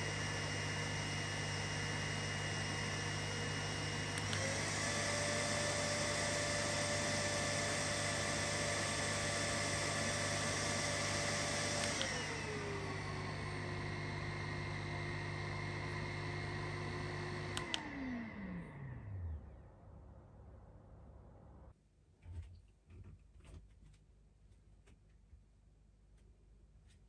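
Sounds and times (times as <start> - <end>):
vacuum motor whining hum: 0.0 - 19.7
motor winding down: 3.5 - 13.5.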